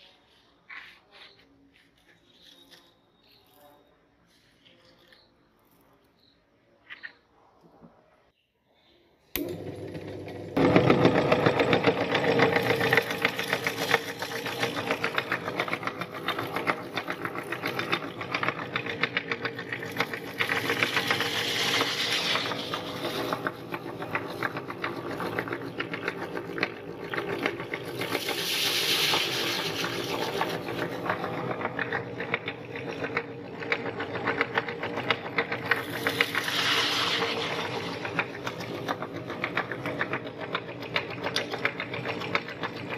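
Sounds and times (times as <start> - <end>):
meat grinder motor rattling: 9.4 - 42.9.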